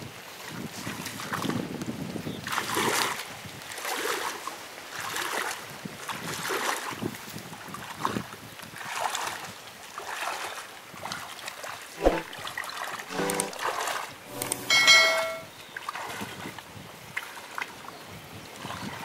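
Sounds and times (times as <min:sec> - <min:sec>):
wading through water splashing: 0:08.8 - 0:15.1.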